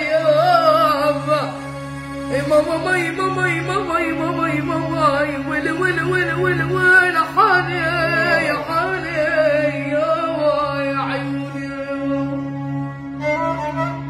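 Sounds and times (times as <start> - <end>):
violin playing: 1.0 - 14.0
steady low drone: 1.5 - 14.0
boy singing ornamented vocal line: 2.4 - 12.3.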